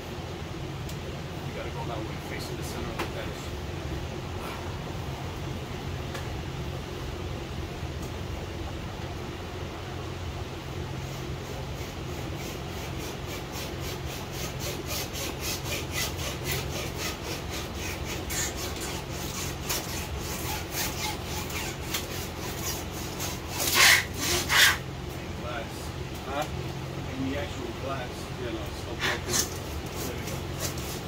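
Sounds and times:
wire sawing rhythmic rasp: 10.9 - 24.9, 28.5 - 31.0.

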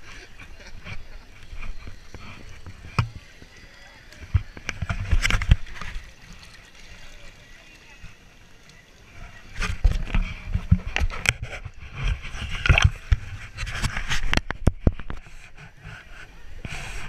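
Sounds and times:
camera handling knocks and scrapes: 9.6 - 15.6.

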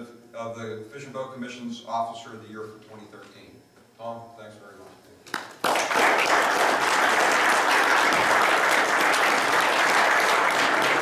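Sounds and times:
audience applauding: 5.3 - 11.0.

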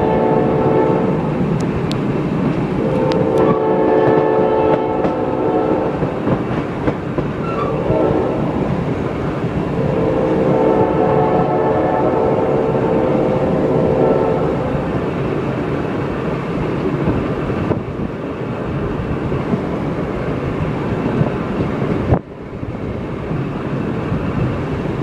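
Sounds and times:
steam locomotive whistle: 0.0 - 1.2, 2.8 - 6.1, 7.4 - 8.7, 9.7 - 14.9
train car rumbling on rails: 0.0 - 25.0.

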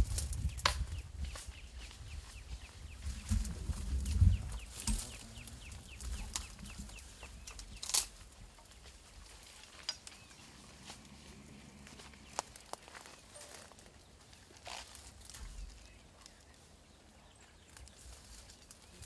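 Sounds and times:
low rumbling and rustling: 0.0 - 13.3
bird chirping: 0.3 - 8.9, 9.6 - 19.0.

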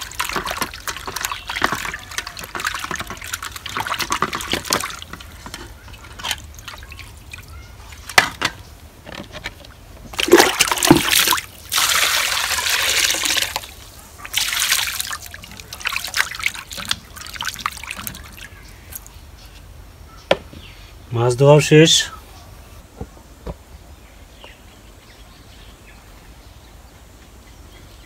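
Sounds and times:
water pouring into steel bowl: 0.0 - 5.4, 10.2 - 18.3
hands sloshing fish in water: 0.0 - 8.1, 10.1 - 18.5.

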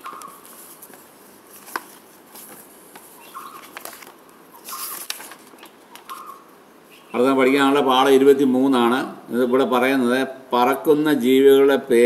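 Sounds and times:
paper pages turning: 0.0 - 6.3.

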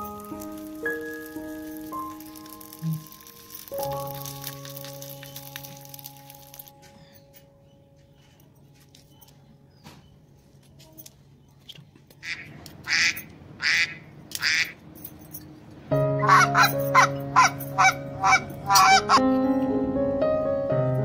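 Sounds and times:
music: 0.0 - 9.2, 15.9 - 21.0.

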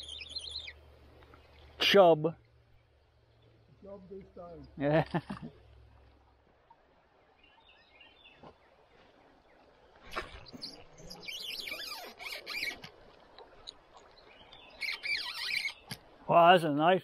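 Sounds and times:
small birds chirping and singing: 0.0 - 1.8, 7.2 - 12.8, 14.1 - 16.0.

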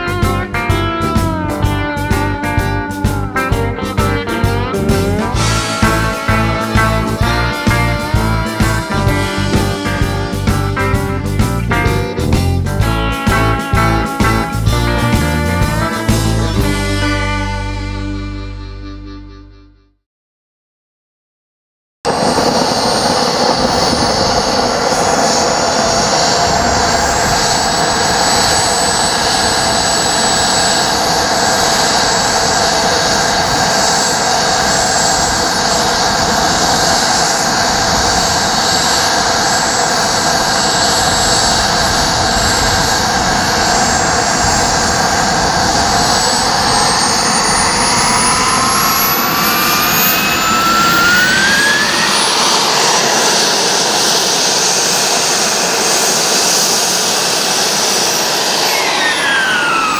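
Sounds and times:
model jet turbine whining: 4.8 - 11.5, 22.1 - 59.9.

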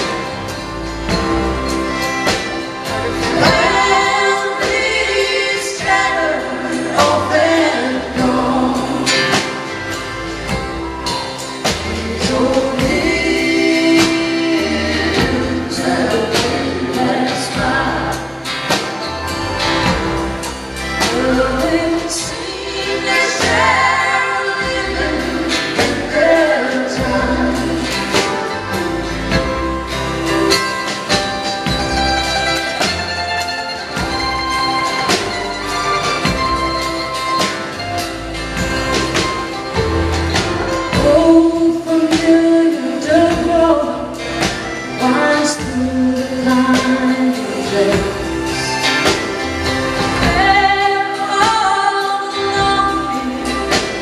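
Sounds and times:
acoustic guitars: 0.0 - 54.0
drum kit strokes: 0.0 - 54.0
mandolin: 0.0 - 54.0
voices singing together: 3.2 - 10.0, 11.4 - 19.1, 21.0 - 28.8.

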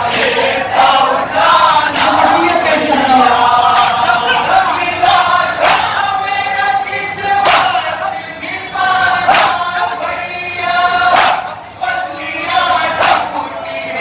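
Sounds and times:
men chanting in unison: 0.0 - 14.0
chest-beating slaps: 9.3 - 9.6, 11.1 - 11.5, 13.0 - 13.3.

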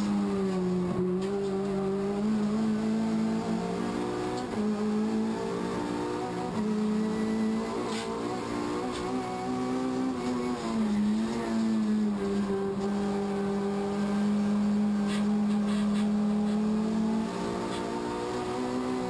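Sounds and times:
race car engine revving: 0.0 - 19.0.

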